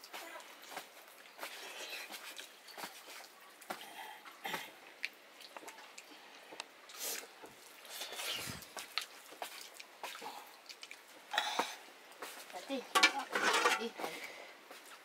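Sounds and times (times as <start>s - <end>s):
chewing: 0.7s - 12.4s
clicks against steel plates: 12.9s - 13.9s.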